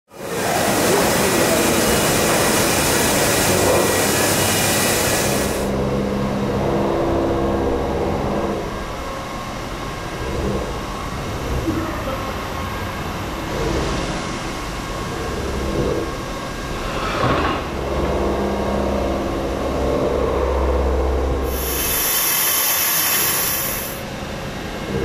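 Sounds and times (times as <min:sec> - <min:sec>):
loud high hiss: 0:00.2 - 0:05.8, 0:21.4 - 0:24.0
machines rumbling and clattering: 0:00.2 - 0:22.0, 0:24.0 - 0:25.0.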